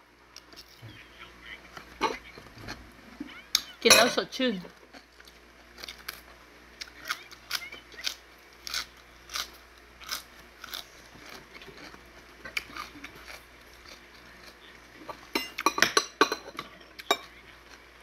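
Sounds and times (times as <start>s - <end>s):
person chewing crisp vegetables: 4.8s - 15.6s, 16.9s - 18.0s.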